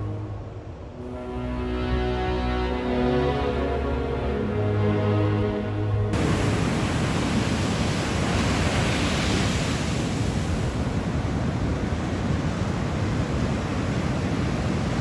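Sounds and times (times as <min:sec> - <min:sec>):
ocean waves breaking: 0:03.6 - 0:15.0.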